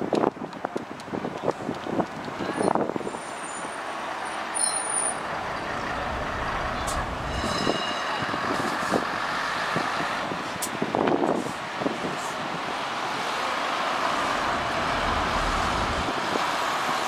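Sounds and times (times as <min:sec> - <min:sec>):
traffic noise: 0:00.0 - 0:17.0
heavy vehicle passing: 0:05.1 - 0:10.5, 0:12.9 - 0:17.0.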